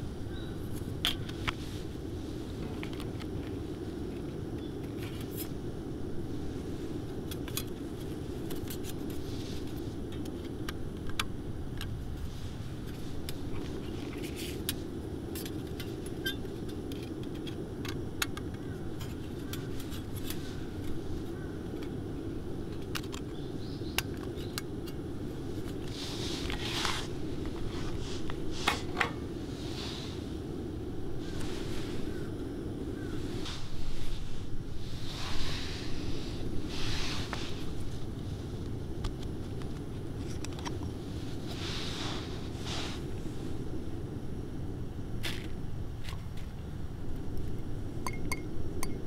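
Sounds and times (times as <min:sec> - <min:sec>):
low background noise: 0:00.0 - 0:49.0.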